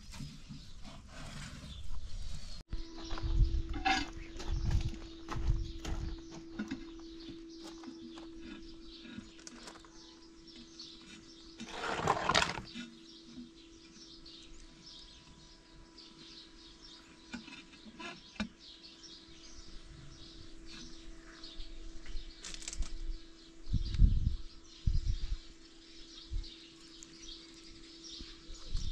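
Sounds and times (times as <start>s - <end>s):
small birds chirping: 0.0s - 28.9s
faint hum: 2.0s - 11.7s.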